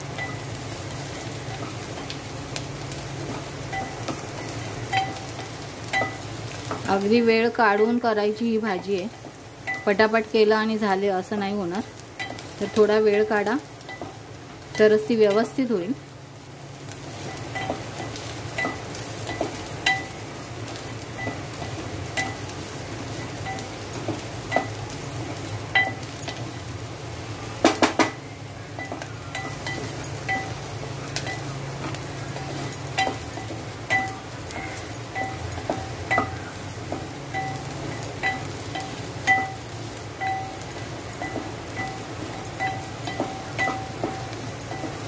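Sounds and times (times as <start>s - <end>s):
onion sizzling in a pot: 0.0s - 45.0s
wooden spatula knocking pot: 43.1s - 45.0s.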